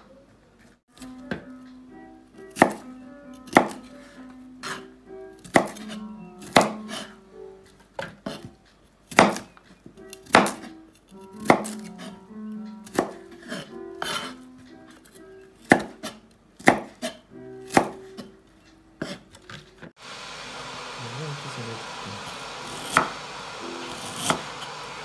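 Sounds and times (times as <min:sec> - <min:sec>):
soft background music: 0:00.0 - 0:20.0
knife chopping on cutting board: 0:02.5 - 0:03.9, 0:04.6 - 0:07.1, 0:08.0 - 0:12.2, 0:12.8 - 0:14.4, 0:15.6 - 0:18.3, 0:19.0 - 0:19.6, 0:22.6 - 0:23.2, 0:23.9 - 0:24.7
steady hiss: 0:20.0 - 0:25.0.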